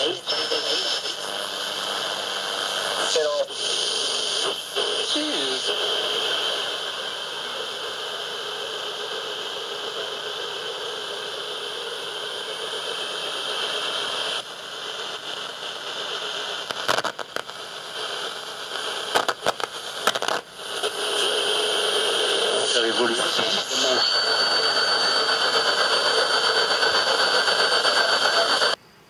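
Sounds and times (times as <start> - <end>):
radio static hiss: 0.0 - 28.8
crackle and pops: 14.4 - 21.3.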